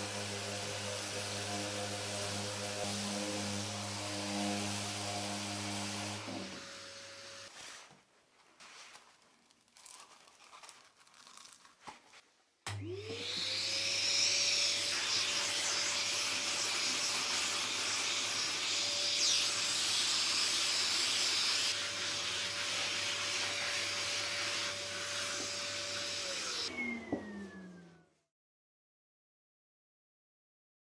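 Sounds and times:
shop vacuum motor whine: 0:00.0 - 0:07.5, 0:12.7 - 0:28.1.

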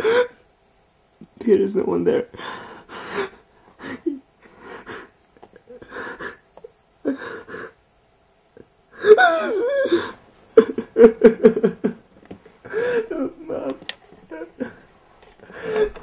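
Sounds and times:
person gasping: 0:09.0 - 0:10.2, 0:12.6 - 0:16.0
person crying out: 0:09.0 - 0:11.8, 0:12.7 - 0:14.8.

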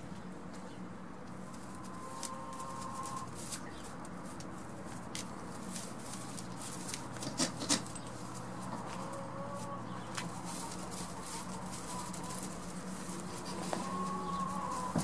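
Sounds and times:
light rustling on straw: 0:00.1 - 0:15.0.

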